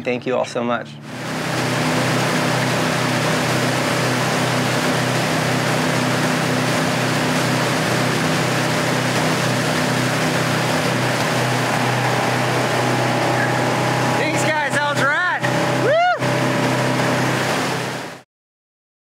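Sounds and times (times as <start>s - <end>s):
churning wake water: 0.0s - 18.2s
motorboat engine humming: 0.0s - 18.2s.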